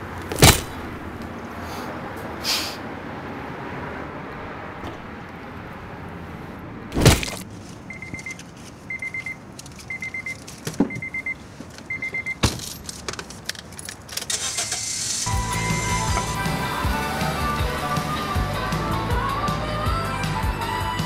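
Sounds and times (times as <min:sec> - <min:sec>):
tire iron striking: 0:00.0 - 0:01.3, 0:06.9 - 0:07.4
car warning chime beeps: 0:07.9 - 0:12.4
music: 0:15.3 - 0:21.0.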